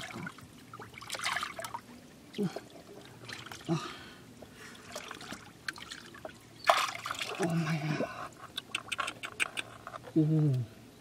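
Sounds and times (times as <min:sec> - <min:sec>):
water splash: 0:00.0 - 0:01.8, 0:04.9 - 0:07.6
shallow water sloshing and trickling: 0:00.0 - 0:10.1
man murmuring: 0:10.2 - 0:10.7.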